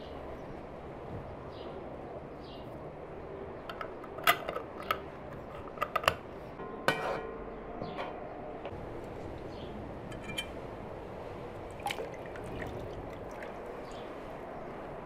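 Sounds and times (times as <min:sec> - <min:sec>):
metal lid scraping on glass jar: 0:03.7 - 0:06.2, 0:06.9 - 0:07.3.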